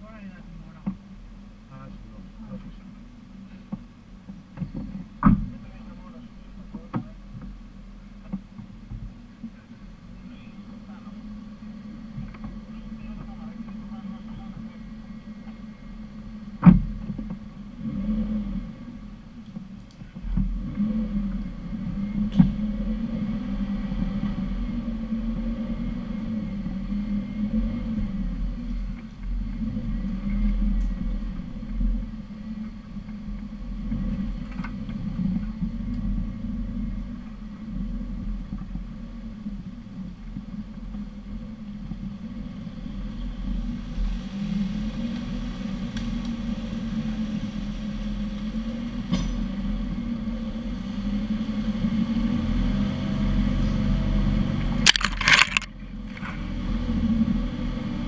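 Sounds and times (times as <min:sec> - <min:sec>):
off-road vehicle engine droning: 0:00.0 - 0:58.0.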